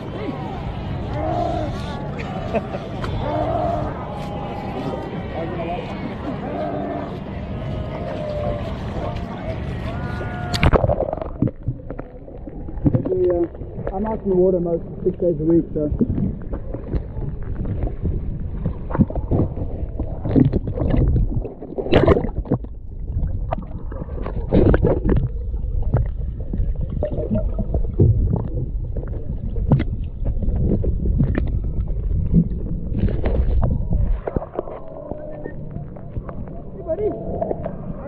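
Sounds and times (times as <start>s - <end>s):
steady low rumble: 0.0s - 38.0s
underwater sloshing and gurgling: 0.0s - 38.0s
knocks and splashes: 15.9s - 34.9s.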